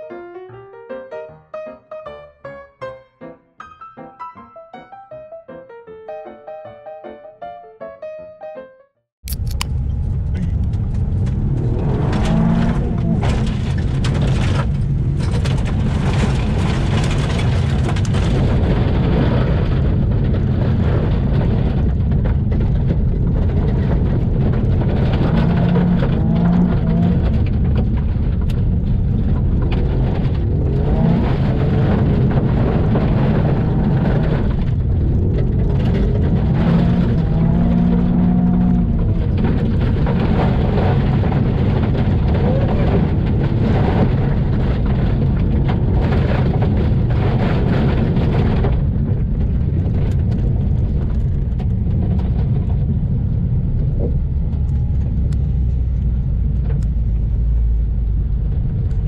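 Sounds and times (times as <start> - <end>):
car engine accelerating: 9.3 - 19.2, 23.2 - 48.4
tyres rumbling on gravel: 9.3 - 59.0.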